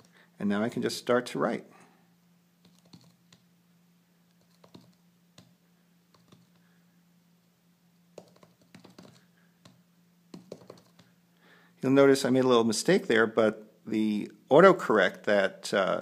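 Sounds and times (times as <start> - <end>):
faint low hum: 0.0 - 16.0
fingertips tapping on touchscreen: 2.6 - 3.5, 4.3 - 6.6, 8.1 - 11.2.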